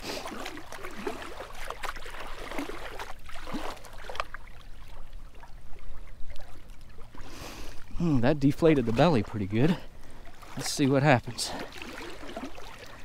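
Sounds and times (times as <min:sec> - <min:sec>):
shallow water sloshing and gurgling: 0:00.0 - 0:13.0.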